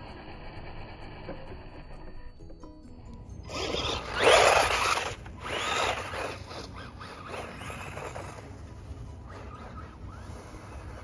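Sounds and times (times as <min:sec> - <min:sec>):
electric motor whining in surges: 0:00.0 - 0:02.4, 0:03.4 - 0:11.0.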